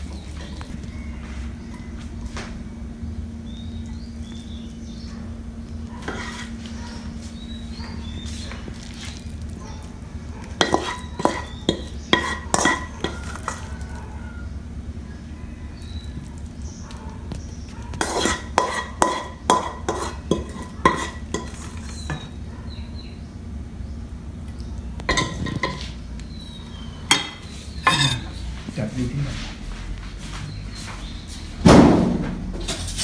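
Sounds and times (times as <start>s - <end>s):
steady low hum: 0.0s - 33.0s
spatula clinking on wok and bowls: 10.5s - 13.9s, 18.0s - 22.3s, 25.1s - 26.0s, 27.1s - 28.4s.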